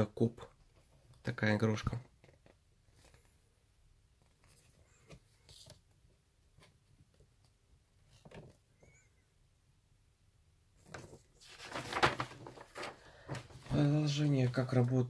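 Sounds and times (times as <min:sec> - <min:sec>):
magazine paper rustling: 0:10.8 - 0:15.0.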